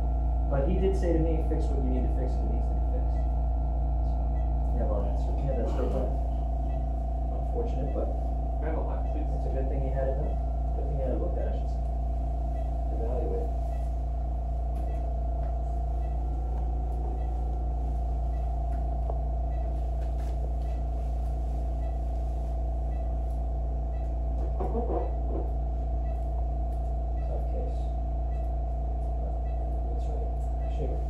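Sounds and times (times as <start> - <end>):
electrical equipment hum: 0.0 - 31.0
murmured voices: 5.1 - 6.7.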